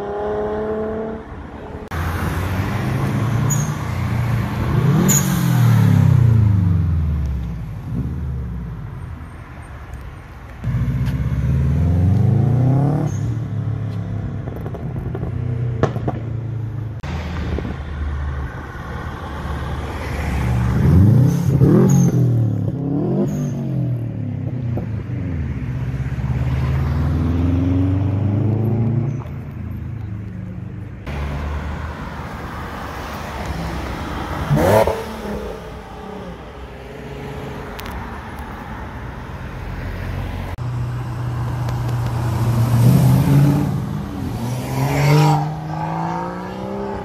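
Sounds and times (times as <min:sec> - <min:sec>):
car engines accelerating: 0:10.6 - 0:47.0.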